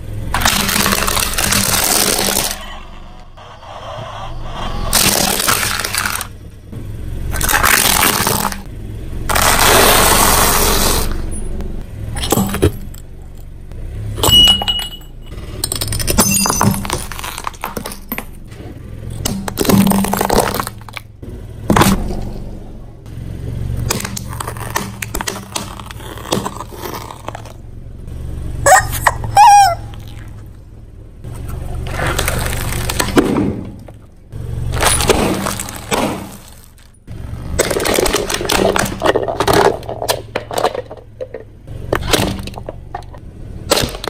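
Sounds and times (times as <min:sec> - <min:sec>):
objects crunching under car tyre: 0:00.0 - 0:02.8, 0:04.9 - 0:06.5, 0:07.3 - 0:11.5, 0:15.3 - 0:22.5, 0:23.8 - 0:27.7, 0:29.9 - 0:44.0
sharp cracks and snaps: 0:07.3 - 0:08.7, 0:23.8 - 0:27.6, 0:31.9 - 0:34.0, 0:42.0 - 0:44.0.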